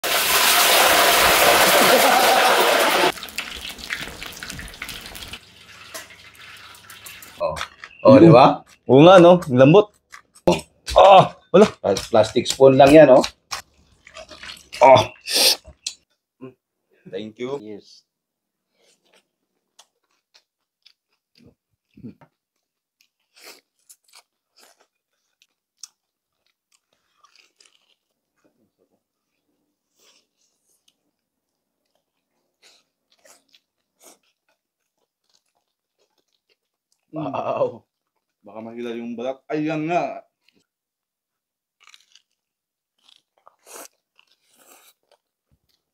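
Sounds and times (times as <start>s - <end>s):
meat sizzling in hot oil: 0.0s - 7.4s
crisp crunching: 7.2s - 15.4s, 22.6s - 28.2s, 41.8s - 45.9s.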